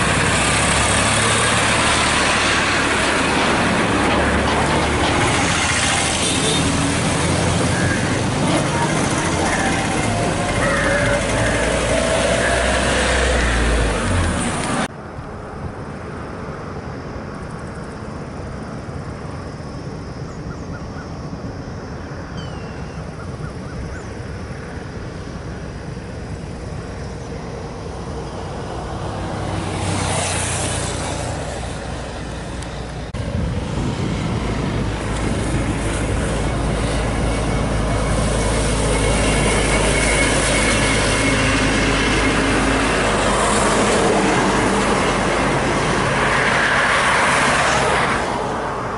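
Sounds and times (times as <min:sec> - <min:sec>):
vehicle passing: 0:00.0 - 0:14.9, 0:27.7 - 0:48.9
low rumble of highway driving: 0:00.0 - 0:48.9
wind noise: 0:00.0 - 0:48.9.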